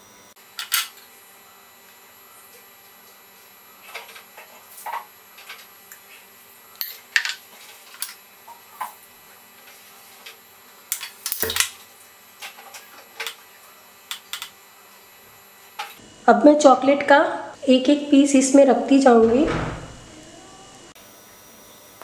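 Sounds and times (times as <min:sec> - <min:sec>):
louder knocks with low thump: 0:19.2 - 0:20.1.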